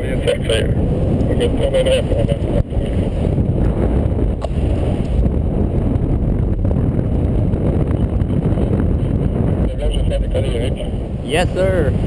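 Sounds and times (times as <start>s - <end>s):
wind rushing over microphone: 0.0s - 12.0s.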